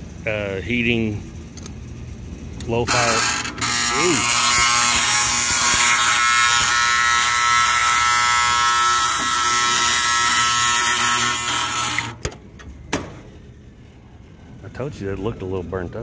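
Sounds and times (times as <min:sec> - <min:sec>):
blower motor buzzing loudly: 0:02.6 - 0:12.2.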